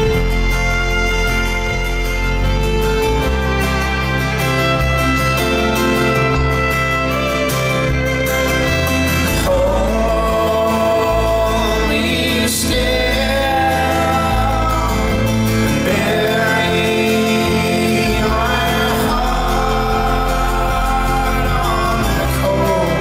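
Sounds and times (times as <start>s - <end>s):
acoustic guitar: 0.0s - 23.0s
banjo: 0.0s - 23.0s
upright double bass: 0.0s - 23.0s
voices singing: 9.1s - 23.0s.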